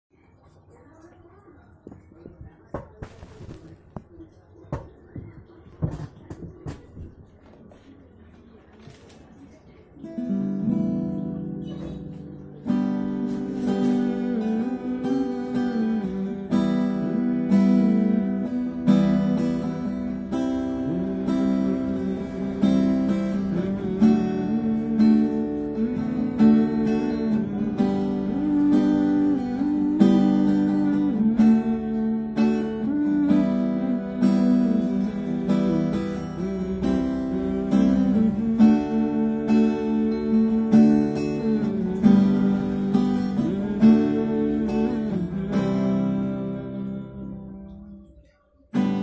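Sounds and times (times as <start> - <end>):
acoustic guitar strumming: 9.8 - 49.0.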